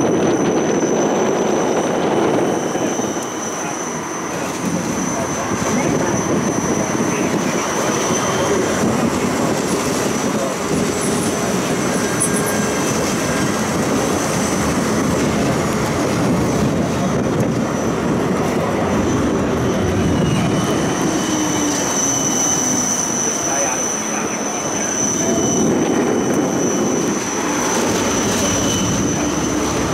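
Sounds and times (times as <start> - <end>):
tram rolling noise: 0.0 - 29.9
thin high whine: 19.5 - 29.9.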